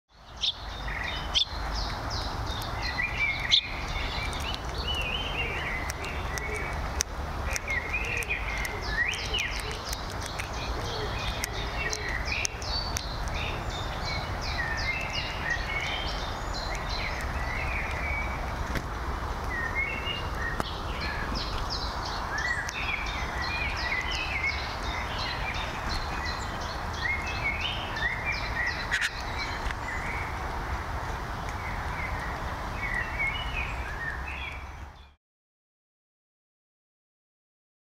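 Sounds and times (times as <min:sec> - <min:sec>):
songbirds chirping: 0:00.1 - 0:35.2
sharp clicks: 0:04.1 - 0:13.8.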